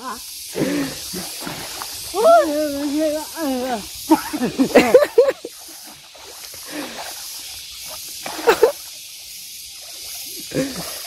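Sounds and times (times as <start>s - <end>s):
steady high hiss: 0.0s - 11.0s
men's voices: 2.1s - 5.4s.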